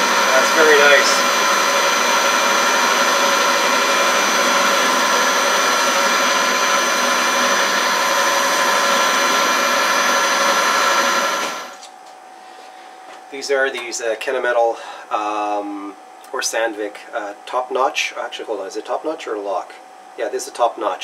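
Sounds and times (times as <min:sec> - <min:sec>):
metal lathe humming and whining: 0:00.0 - 0:11.8.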